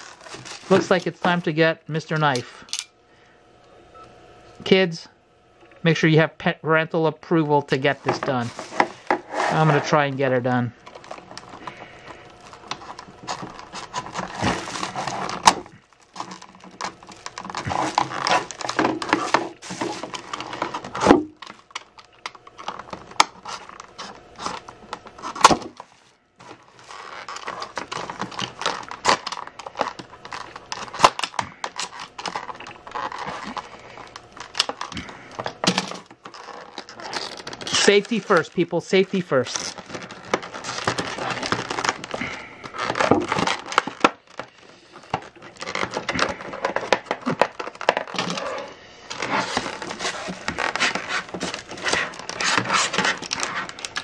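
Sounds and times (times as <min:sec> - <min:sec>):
utility knife cutting plastic: 0:10.8 - 0:54.0.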